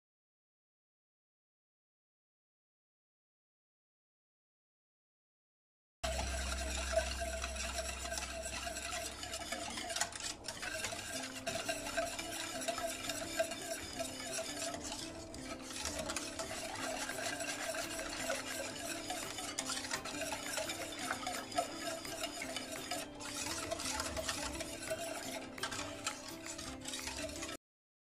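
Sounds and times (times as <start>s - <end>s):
whisk swishing liquid in pot: 6.0s - 27.6s
whisk wires ticking against pot: 6.0s - 27.6s.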